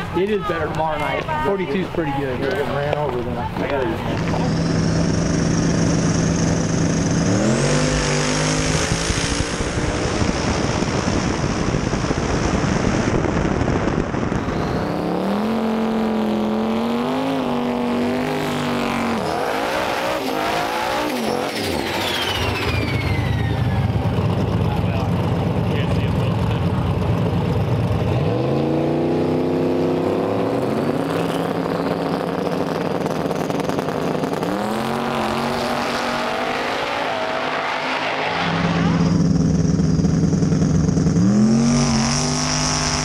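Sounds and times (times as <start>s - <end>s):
race car engine at full throttle: 0.0s - 43.0s
car engine burnout: 3.7s - 43.0s
falling whistle: 14.4s - 15.1s, 21.9s - 23.8s.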